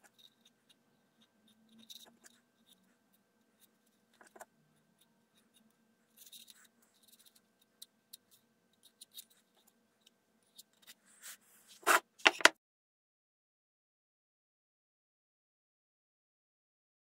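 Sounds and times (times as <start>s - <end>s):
palette knives scraping: 0.0s - 9.8s, 10.4s - 12.5s.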